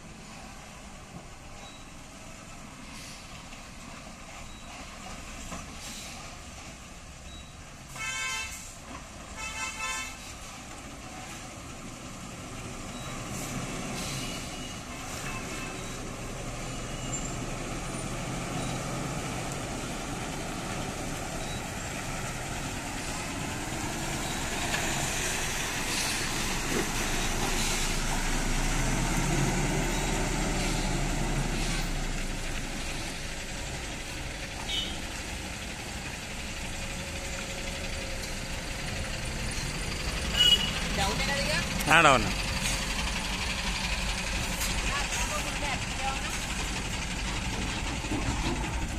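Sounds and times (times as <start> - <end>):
truck diesel engine under load: 0.0 - 48.9
vehicle horn blasts: 8.0 - 8.6, 9.4 - 10.2, 34.6 - 35.0, 40.4 - 40.8.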